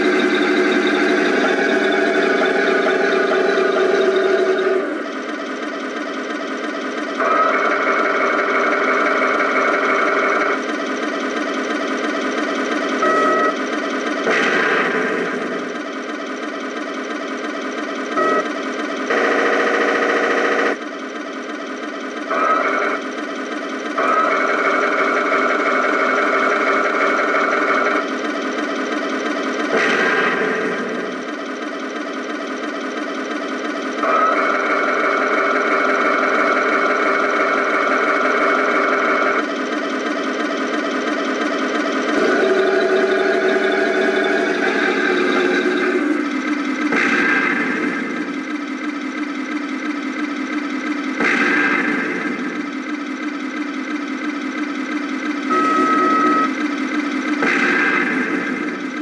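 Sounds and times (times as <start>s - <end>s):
tank engine idling through speaker: 0.0s - 59.0s
turret traverse whine: 0.0s - 59.0s.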